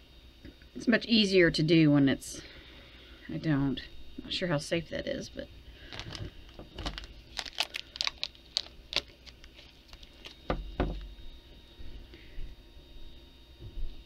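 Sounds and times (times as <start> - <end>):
dull thumps: 10.4 - 11.2.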